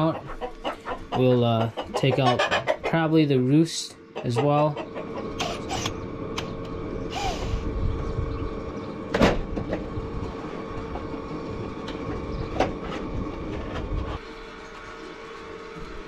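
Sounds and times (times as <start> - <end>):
low rumble: 6.0 - 12.3.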